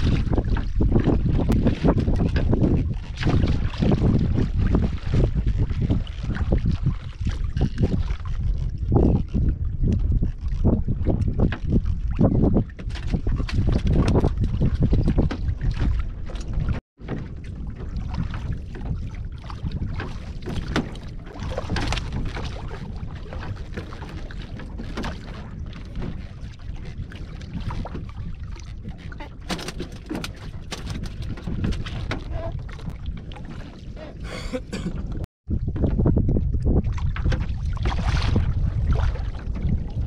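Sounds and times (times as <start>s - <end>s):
wind rumbling on microphone: 0.0s - 40.0s
knocks and rustles on wooden planks: 28.8s - 32.3s.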